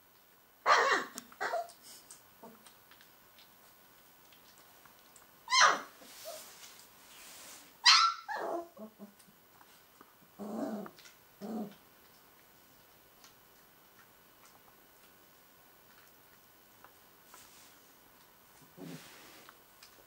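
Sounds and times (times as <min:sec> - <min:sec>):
puppy yapping: 0:00.6 - 0:01.8, 0:05.5 - 0:06.4, 0:07.8 - 0:08.9
puppy growling: 0:08.3 - 0:09.3, 0:10.4 - 0:11.9, 0:18.6 - 0:19.2.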